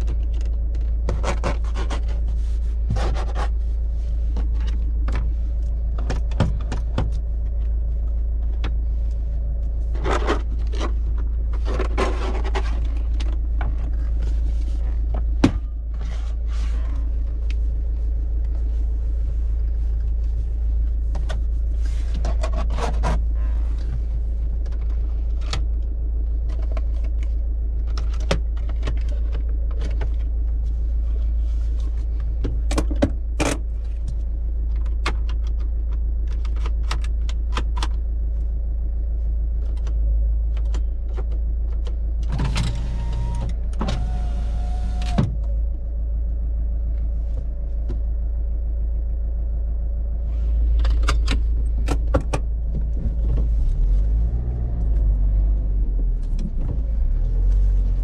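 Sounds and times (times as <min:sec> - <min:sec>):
clicks and knocks of handling: 0:00.0 - 0:02.1
electric window motor: 0:42.4 - 0:45.4.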